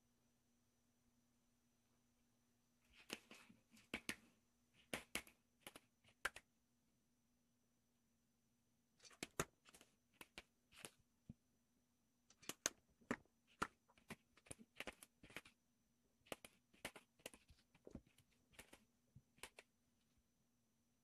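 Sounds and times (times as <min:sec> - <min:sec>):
kitten scratching the floor: 0:09.0 - 0:11.0, 0:12.3 - 0:15.6, 0:16.2 - 0:19.7.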